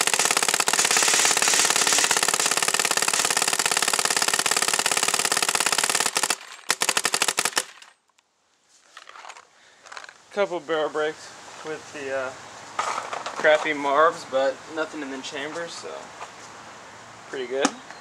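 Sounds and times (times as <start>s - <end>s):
paintball marker rapid firing: 0.0s - 7.8s.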